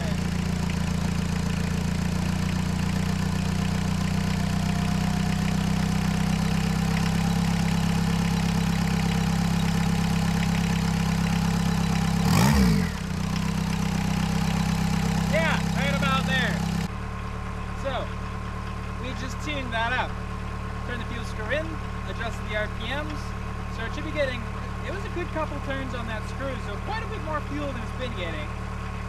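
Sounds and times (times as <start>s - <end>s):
engine revving: 0.0s - 16.9s
diesel engine idling: 0.0s - 29.0s.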